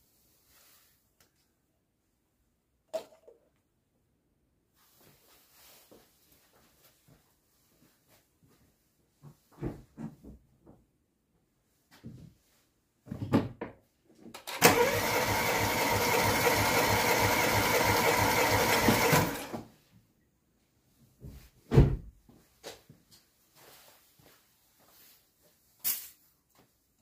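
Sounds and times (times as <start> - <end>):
starter motor cranking engine: 14.4 - 19.5.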